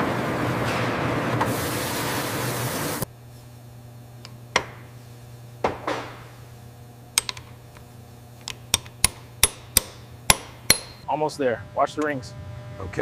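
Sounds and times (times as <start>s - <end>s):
low steady hum: 3.0s - 13.0s
hammer tapping metal: 8.4s - 11.1s.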